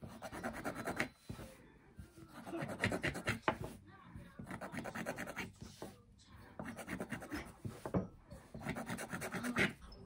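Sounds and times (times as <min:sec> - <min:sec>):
plastic tool scratching fabric: 0:02.3 - 0:06.0, 0:06.6 - 0:08.0, 0:08.6 - 0:09.8.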